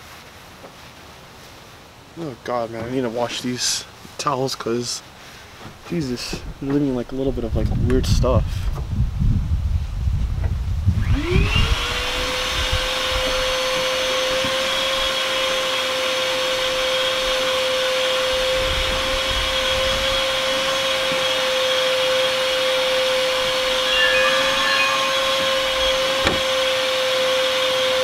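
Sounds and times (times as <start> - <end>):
vacuum cleaner motor whine: 11.0 - 28.0.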